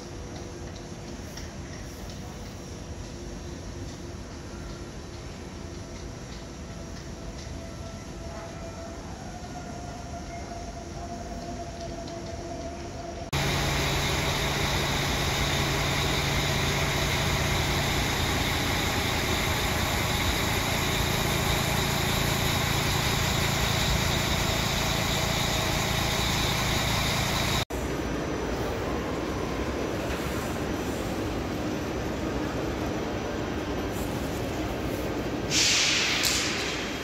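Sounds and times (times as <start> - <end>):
station concourse background noise: 0.0 - 37.0
train rumbling at platform: 0.0 - 37.0.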